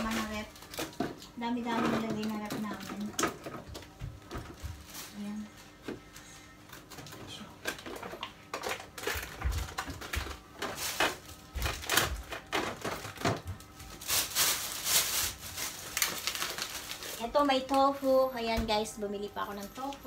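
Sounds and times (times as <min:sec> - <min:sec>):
packages clicking and knocking: 0:00.0 - 0:18.9
packaging rustling: 0:06.8 - 0:18.0.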